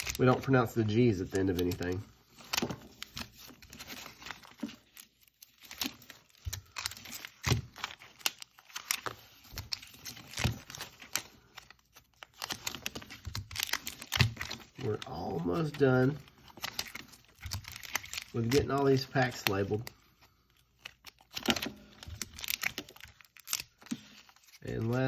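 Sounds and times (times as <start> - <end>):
foil packs crinkling: 0.0 - 25.0
paper labels peeling: 0.0 - 25.0.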